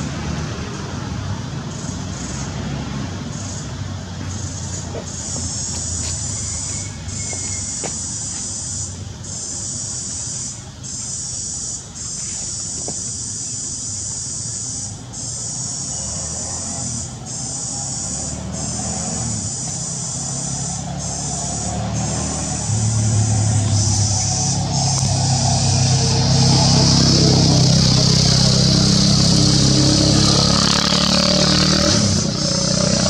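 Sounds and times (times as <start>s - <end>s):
insects droning: 0.0s - 33.0s
vehicle engine: 0.0s - 33.0s.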